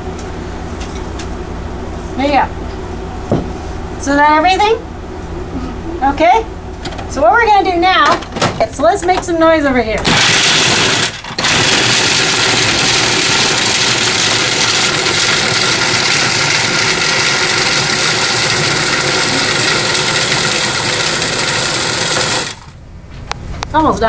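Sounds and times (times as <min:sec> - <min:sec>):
food processor motor grinding: 0:10.0 - 0:22.8.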